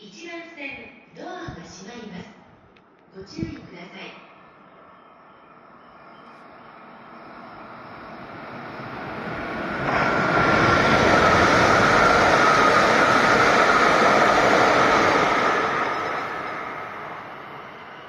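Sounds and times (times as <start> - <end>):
train passing at speed: 4.0 - 18.0.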